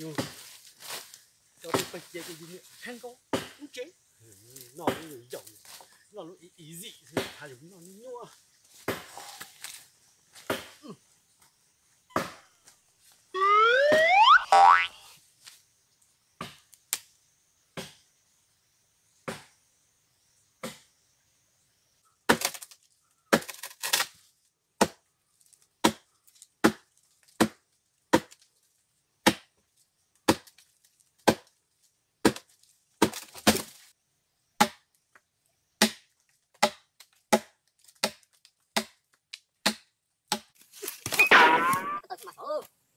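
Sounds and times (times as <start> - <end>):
axe chopping log: 3.3 - 3.6, 23.3 - 23.7, 24.8 - 25.0, 25.8 - 28.4, 29.2 - 29.5, 30.3 - 30.5, 31.2 - 31.5, 32.2 - 33.7, 34.6 - 34.9, 35.8 - 39.0, 39.6 - 42.0
rising whistle-like glide: 13.4 - 14.7.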